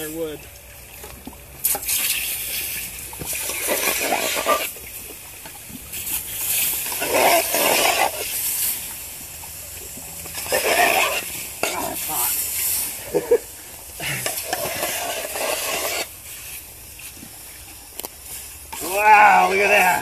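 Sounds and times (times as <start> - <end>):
water splashing: 0.0 - 20.0
hot steel hissing into steam: 6.0 - 9.0, 10.2 - 20.0.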